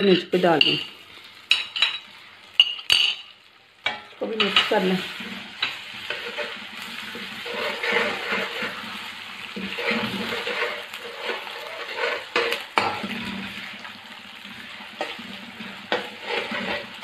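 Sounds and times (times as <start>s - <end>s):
food sizzling in hot oil: 0.0s - 17.0s
utensil scraping and tapping pan: 5.6s - 6.6s, 7.4s - 8.8s, 9.6s - 13.1s, 15.8s - 17.0s.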